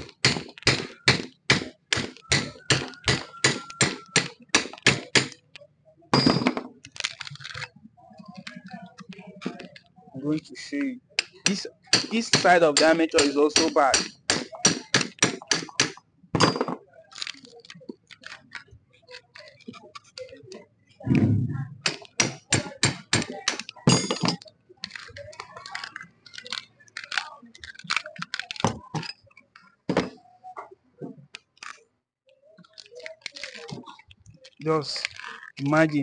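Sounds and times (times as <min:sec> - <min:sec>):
heavy deep thud: 0:21.1 - 0:21.8.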